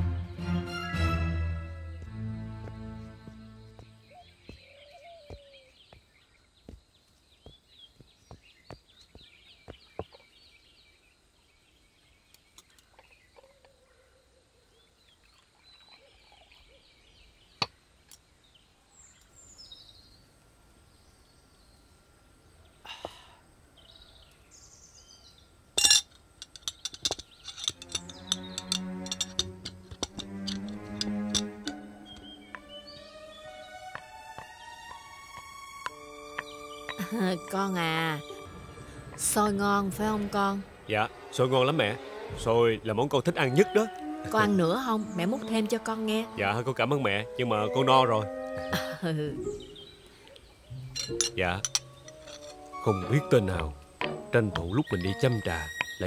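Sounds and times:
music: 0:00.0 - 0:04.6, 0:27.6 - 0:40.7, 0:41.3 - 0:49.8, 0:50.7 - 0:56.0
birds chirping: 0:00.0 - 0:56.0
porcelain teaware clinking: 0:25.8 - 0:31.8, 0:50.9 - 0:52.8.

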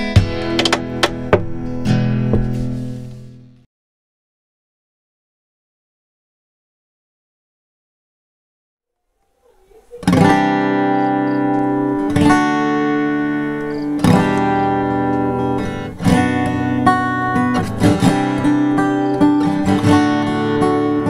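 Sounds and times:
acoustic guitar chords: 0:00.0 - 0:03.6, 0:09.9 - 0:21.0.

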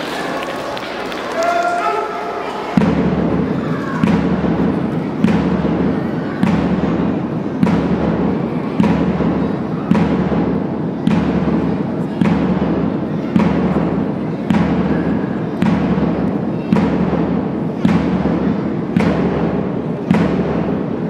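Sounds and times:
big drum beating: 0:02.8 - 0:21.0.

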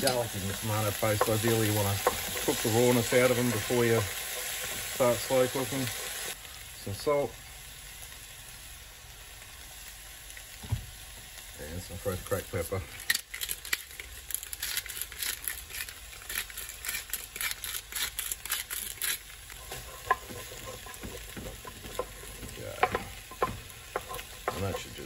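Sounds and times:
vegetables sizzling in pan: 0:00.0 - 0:25.0
pepper grinder crunching: 0:13.0 - 0:25.0
wooden spoon knocking on pan: 0:19.6 - 0:25.0.

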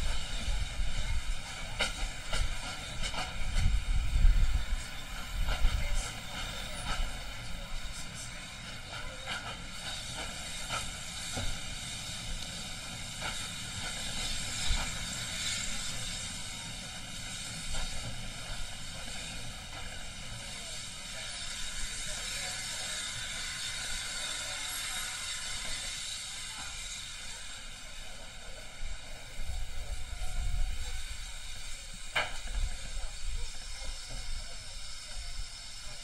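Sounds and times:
wheels clicking on track: 0:00.0 - 0:36.0.

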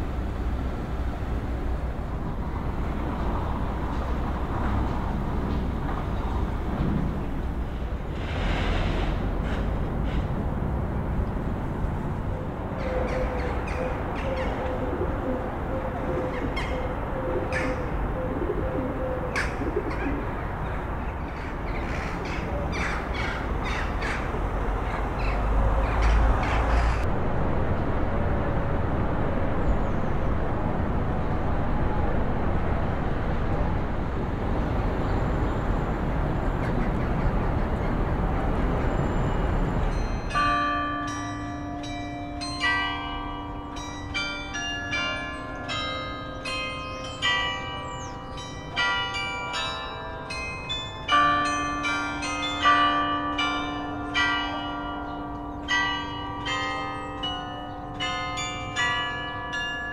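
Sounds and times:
birds chirping: 0:12.7 - 0:27.0, 0:46.8 - 0:48.9.

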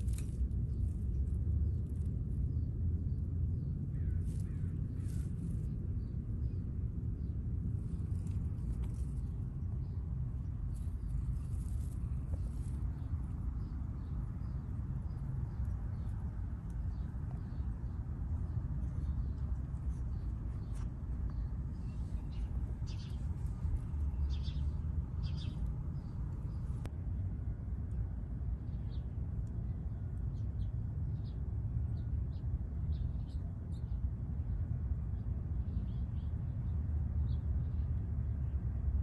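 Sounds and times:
small birds chirping: 0:00.0 - 0:26.9
steady low rumble: 0:00.0 - 0:39.0.

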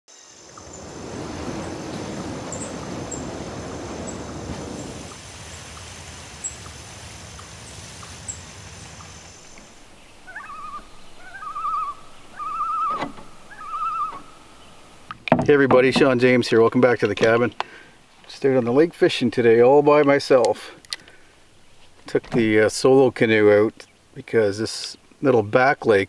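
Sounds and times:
low rumbling noise: 0:00.3 - 0:19.9
bird warbling calls: 0:00.4 - 0:03.4, 0:08.0 - 0:15.1, 0:20.9 - 0:22.1.

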